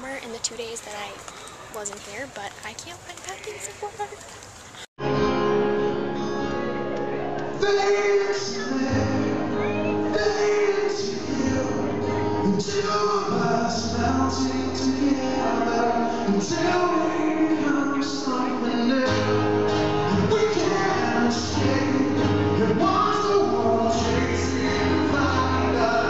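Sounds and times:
acoustic guitar strumming: 0:05.0 - 0:26.0
man singing: 0:07.5 - 0:26.0.

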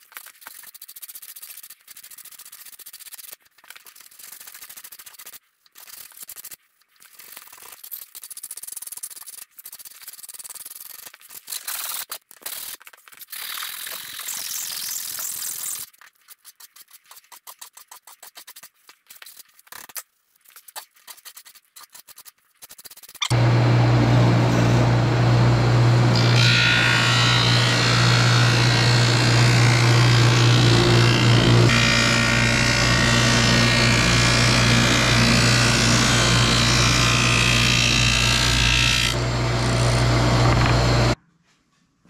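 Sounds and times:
sandpaper scratching on wood: 0:00.2 - 0:23.3
drum sander humming: 0:23.3 - 0:41.2.

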